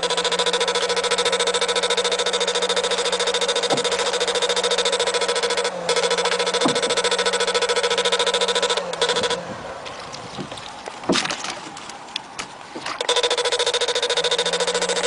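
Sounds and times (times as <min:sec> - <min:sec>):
electric fish shocker buzzing: 0:00.0 - 0:15.0
water sounds: 0:00.0 - 0:15.0
knocks: 0:03.6 - 0:04.1, 0:06.6 - 0:07.0.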